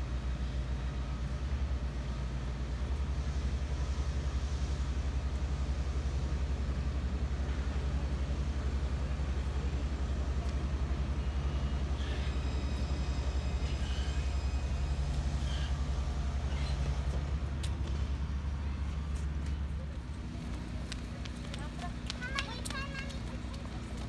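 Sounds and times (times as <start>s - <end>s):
tram rumbling: 0.0s - 24.0s
tram brakes squealing: 7.4s - 19.7s.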